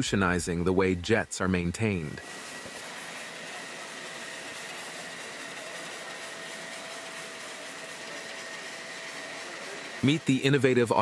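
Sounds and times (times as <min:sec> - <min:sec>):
water spraying onto floor: 0:02.2 - 0:10.4.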